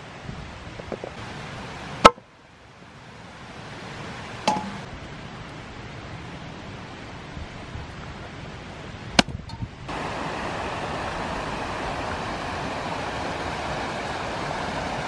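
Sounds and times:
steady background hiss: 0.0 - 15.0
cleaver knocks: 4.5 - 4.9.

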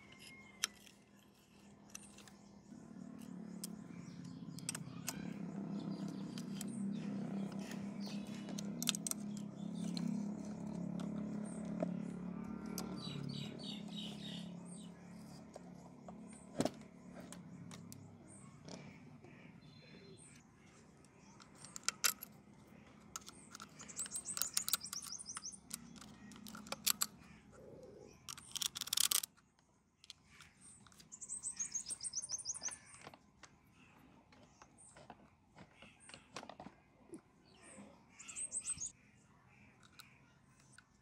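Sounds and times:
metal engine parts clicking: 0.0 - 14.1, 21.0 - 33.2
bird chirping: 0.0 - 36.7, 37.4 - 41.0.

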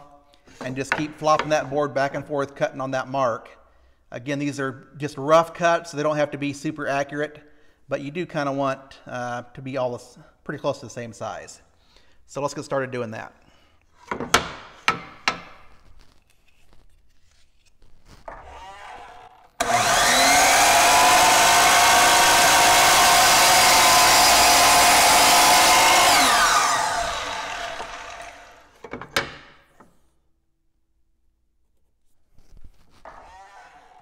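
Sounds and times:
wooden knocks of board: 14.1 - 15.6
miter saw whining: 18.3 - 28.8, 33.1 - 34.0.

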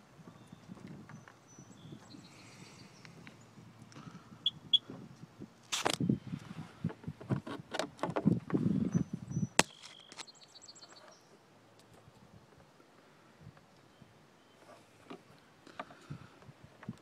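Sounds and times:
quick high beeps: 4.4 - 4.8.

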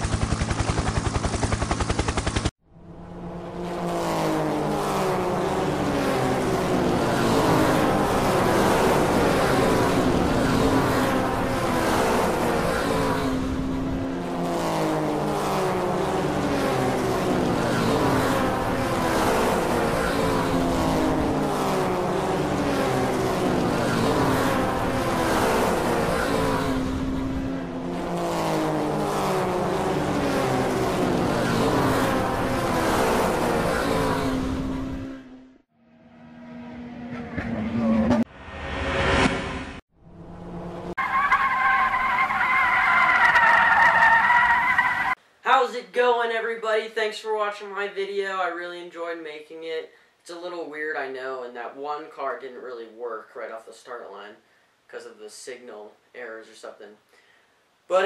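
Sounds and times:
race car engine revving: 1.8 - 45.2.

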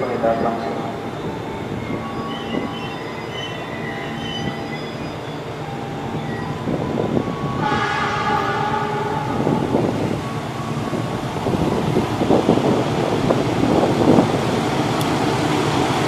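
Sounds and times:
train rumble: 0.0 - 16.0
locomotive horn blast: 7.2 - 10.1.

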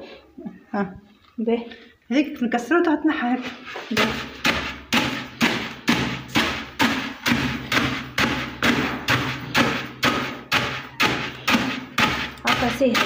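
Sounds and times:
wooden pestle pounding grain: 3.8 - 13.0.

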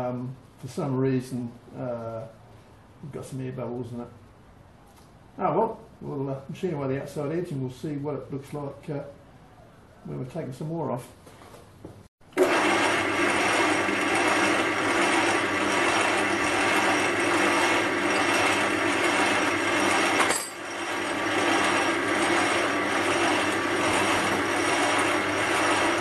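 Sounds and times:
metal lathe humming: 12.4 - 26.0.

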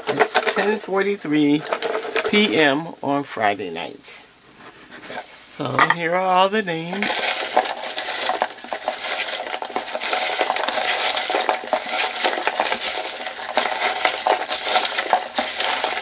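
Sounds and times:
paper slips rustling in a box: 6.9 - 16.0.

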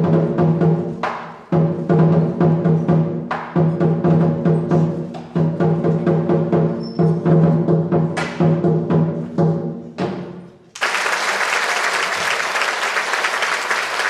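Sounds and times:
audience applause: 10.8 - 14.0.

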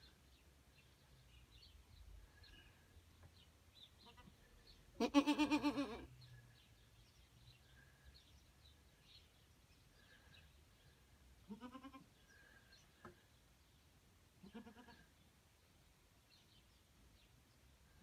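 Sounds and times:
goat bleating: 4.0 - 4.3, 5.0 - 6.1, 11.5 - 12.1, 14.4 - 15.1.

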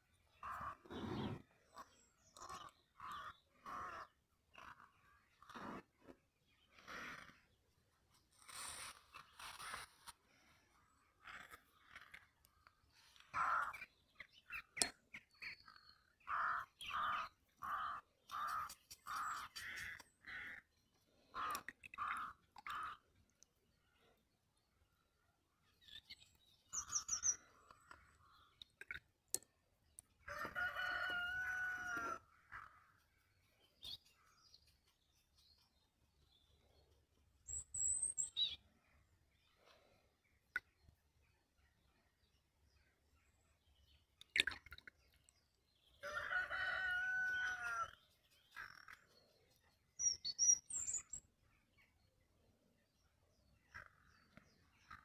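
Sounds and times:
small birds chirping: 0.0 - 55.0
rooster crowing: 30.3 - 32.2, 46.0 - 47.9
high bird chirps: 37.4 - 38.7, 50.0 - 51.3.

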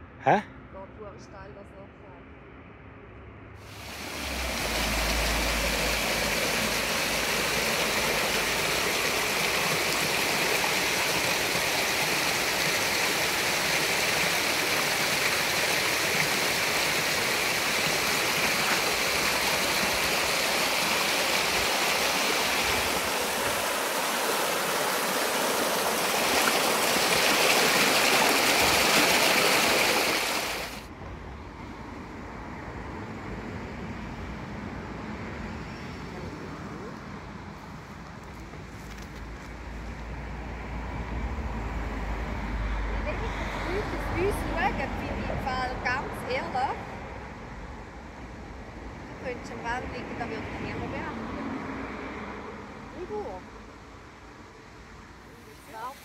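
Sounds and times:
waterfall splashing over rocks: 3.7 - 30.9.

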